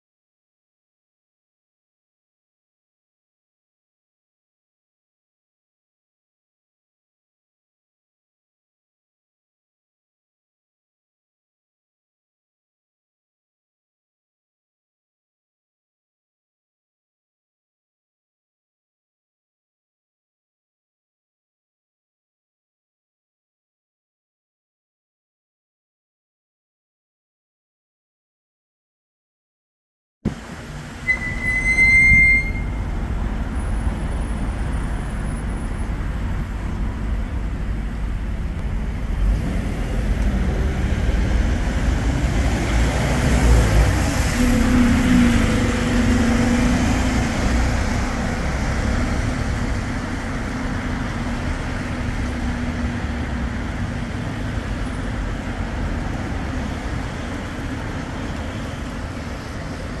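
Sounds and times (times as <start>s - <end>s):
bus engine passing: 30.3s - 60.0s
street traffic: 30.3s - 60.0s
short high beep: 31.0s - 32.9s.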